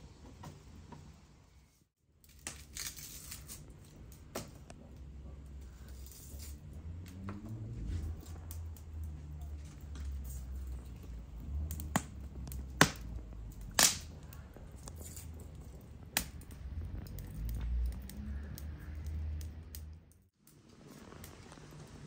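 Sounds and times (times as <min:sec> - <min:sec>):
steady low rumble: 0:03.7 - 0:20.3.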